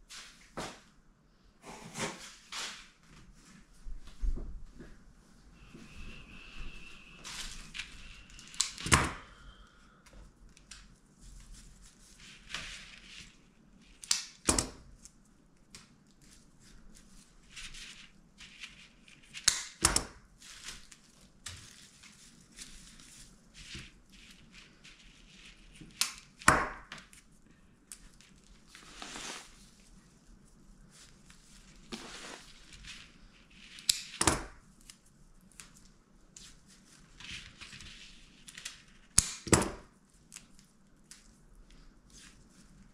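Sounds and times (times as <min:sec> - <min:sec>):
soft rustling: 0:10.2 - 0:14.0, 0:15.0 - 0:19.4, 0:20.3 - 0:26.0, 0:27.1 - 0:33.9, 0:34.6 - 0:39.1, 0:40.0 - 0:42.9
sharp snaps: 0:19.4 - 0:20.0, 0:39.2 - 0:39.5.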